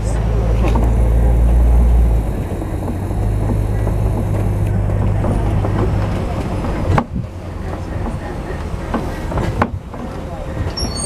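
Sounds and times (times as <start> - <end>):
truck engine drone: 0.0 - 11.0
vehicle rattles and knocks: 0.0 - 11.0.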